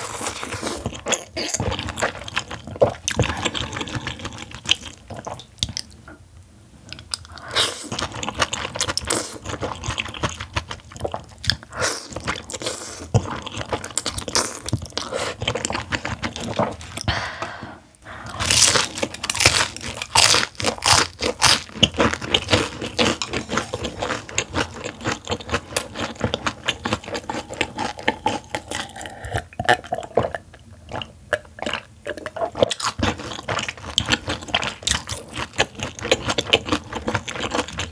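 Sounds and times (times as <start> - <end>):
noodles slurped and chewed: 18.3 - 37.9.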